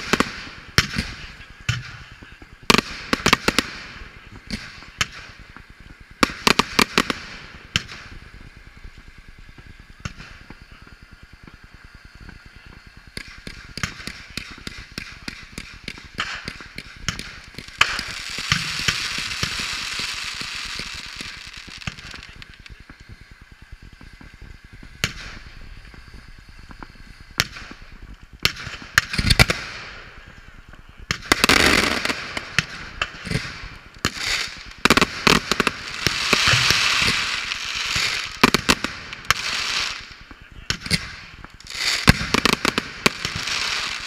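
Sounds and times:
fireworks shells bursting: 0:00.0 - 0:44.0
loud steady firework hiss: 0:00.0 - 0:44.0
rapid firework crackling: 0:00.0 - 0:44.0.

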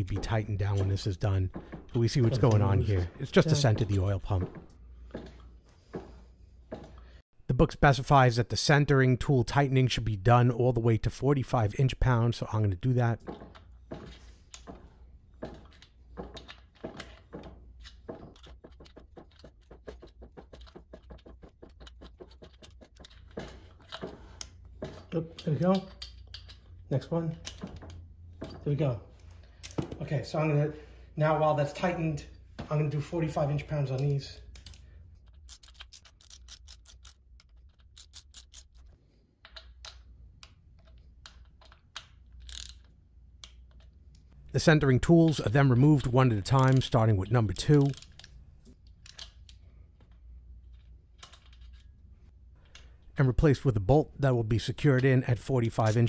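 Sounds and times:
ratchet wrench clicking: 0:40.8 - 0:43.8.

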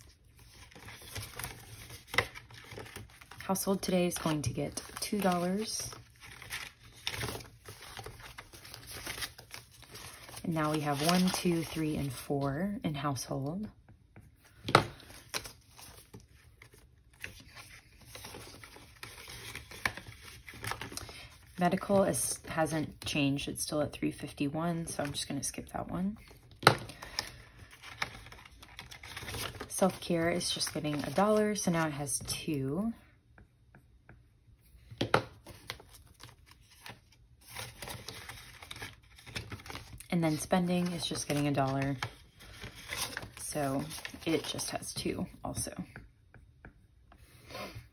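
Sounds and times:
paper and banknotes rustling: 0:00.0 - 0:12.7, 0:14.5 - 0:23.0, 0:24.9 - 0:32.2, 0:35.4 - 0:45.2.

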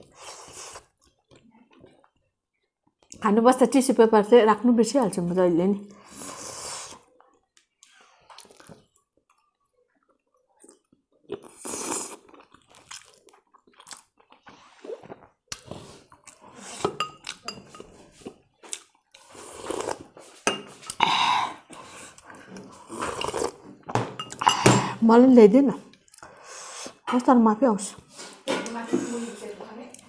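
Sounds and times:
chewing and wet mouth sounds: 0:06.7 - 0:20.1, 0:25.9 - 0:26.5.

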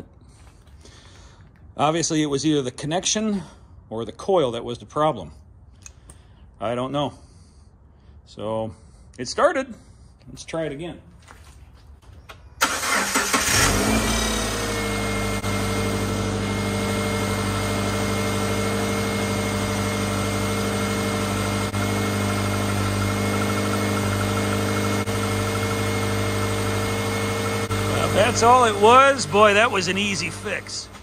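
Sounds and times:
car engine starting and idling: 0:12.6 - 0:31.0.

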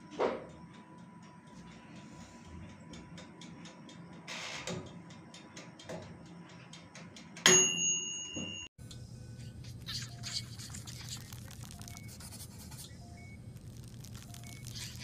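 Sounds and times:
timer bell ding: 0:07.4 - 0:08.7
wind-up timer ticking: 0:09.8 - 0:15.0.

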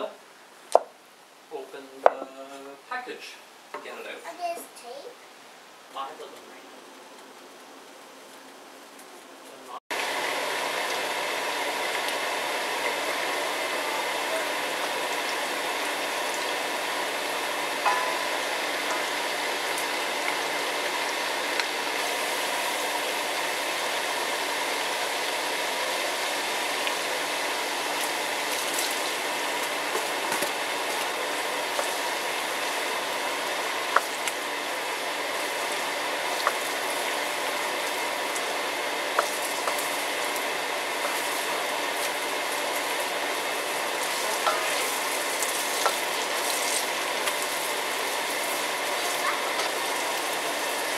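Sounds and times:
oil sizzling in a wok: 0:09.9 - 0:50.9
wooden spatula knocking pan: 0:17.9 - 0:20.4.

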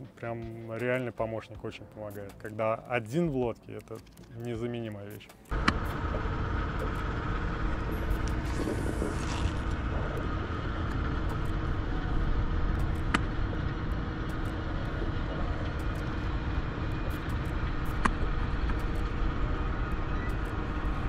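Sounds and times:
low rumble with faint hum: 0:05.5 - 0:21.0.

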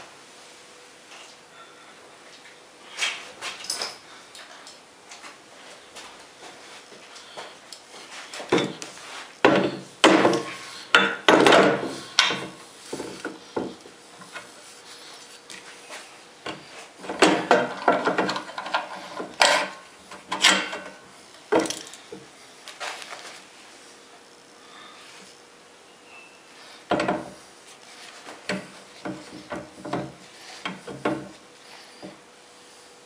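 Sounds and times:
metal clunks and knocks: 0:09.4 - 0:13.8, 0:16.5 - 0:21.9, 0:26.9 - 0:27.4, 0:28.5 - 0:31.3.

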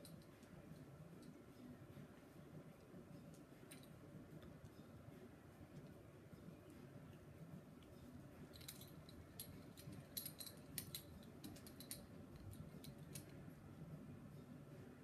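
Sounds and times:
light jingles: 0:08.0 - 0:13.4.

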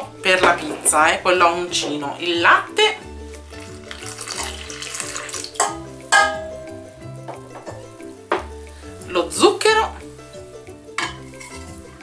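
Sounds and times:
background music: 0:00.0 - 0:12.0
milk pouring into metal bowl: 0:03.5 - 0:05.6
sharp knocks on bowl: 0:05.6 - 0:06.6.

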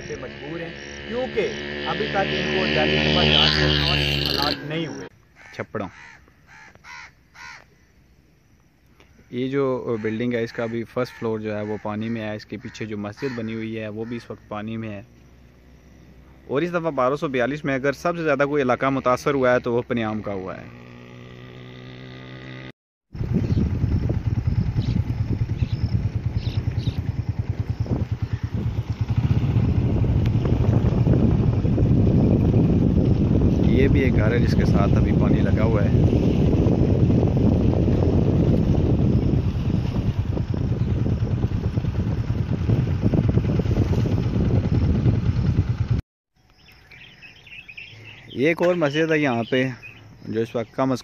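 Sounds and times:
wind buffeting microphone: 0:23.1 - 0:46.0.

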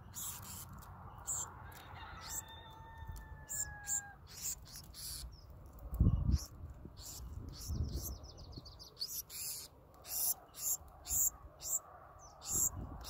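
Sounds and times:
sparrows chirping: 0:00.0 - 0:13.0.

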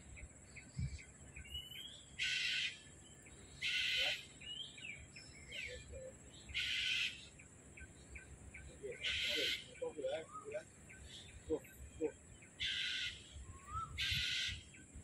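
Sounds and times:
faint bird chirps: 0:00.0 - 0:15.0
bird screeching calls: 0:01.7 - 0:02.9, 0:03.5 - 0:04.7, 0:05.4 - 0:07.4, 0:08.8 - 0:10.7, 0:12.0 - 0:14.7.

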